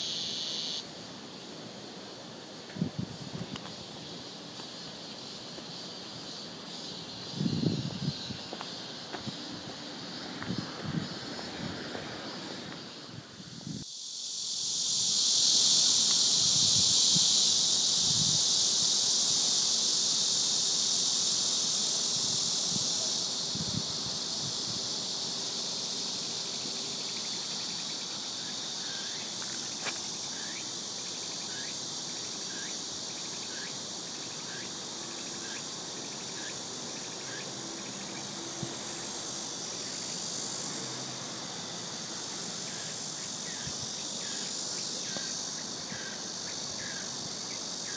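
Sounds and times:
high-pitched insect buzz: 0:00.0 - 0:47.9
insect chirps: 0:00.0 - 0:47.9.

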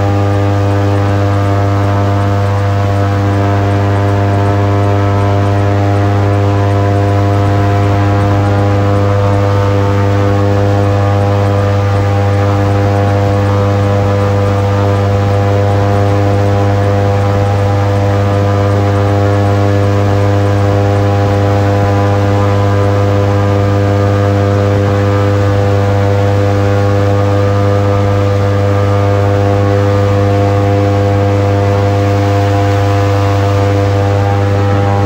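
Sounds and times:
airboat engine drone: 0:00.0 - 0:35.0.

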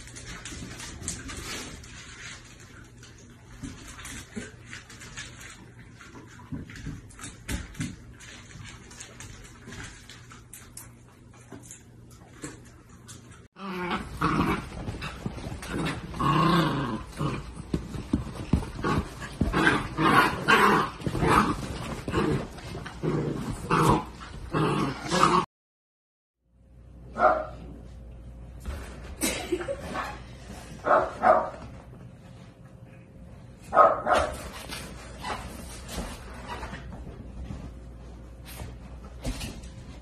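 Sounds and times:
dogs growling while play-fighting: 0:13.5 - 0:25.5.

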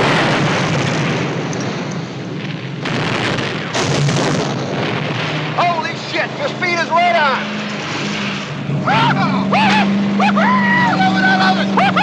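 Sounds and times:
explosion rumble: 0:00.0 - 0:08.7
explosion blasts: 0:00.0 - 0:10.3.

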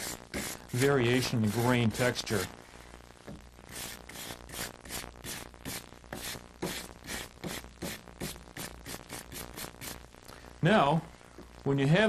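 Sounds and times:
wire brush scrubbing wood: 0:00.0 - 0:02.5, 0:03.7 - 0:10.0.

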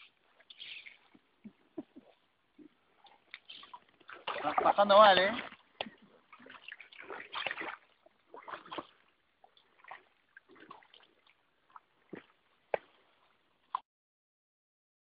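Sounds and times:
paddle strokes splashing: 0:00.0 - 0:13.8
water sloshing: 0:00.0 - 0:13.8.

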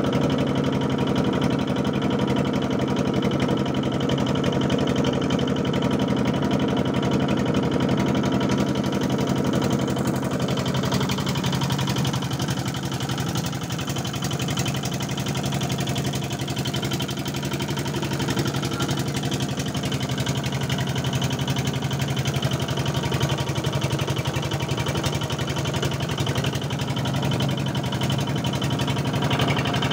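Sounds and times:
boat engine droning: 0:08.4 - 0:29.9.

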